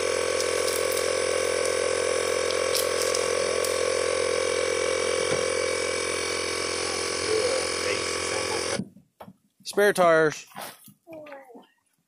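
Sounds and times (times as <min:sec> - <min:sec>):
steady machine hum: 0:00.0 - 0:08.9.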